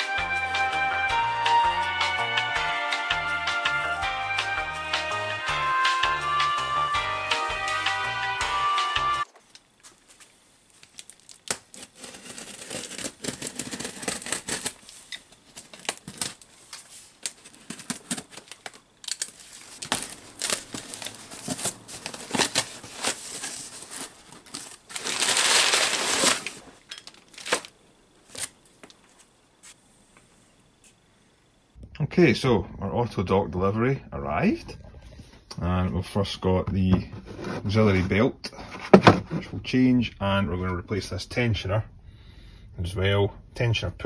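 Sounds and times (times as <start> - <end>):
packaging crinkling and rustling: 9.3 - 29.3.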